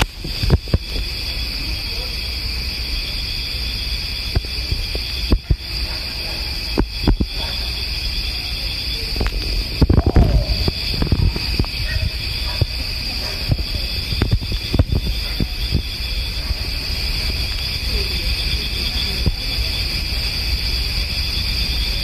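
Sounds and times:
night insects trilling: 0.0s - 22.0s
low rumble: 6.7s - 20.2s.

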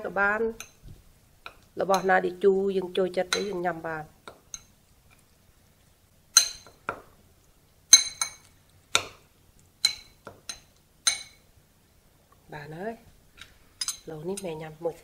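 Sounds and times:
metal spoon clinking ceramic bowl: 3.3s - 3.6s, 6.4s - 6.8s, 7.9s - 9.1s, 9.8s - 11.4s, 13.8s - 14.6s.

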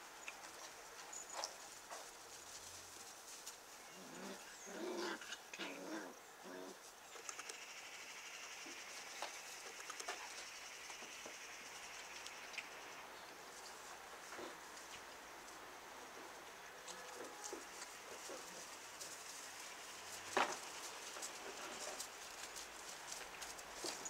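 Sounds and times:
scuffling on grass: 0.5s - 4.5s, 13.3s - 24.0s.

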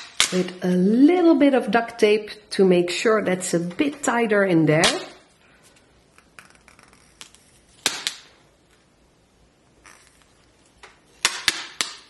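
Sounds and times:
tape crackling: 4.9s - 8.8s
duct tape ripping off roll: 6.1s - 8.3s, 9.8s - 12.0s.

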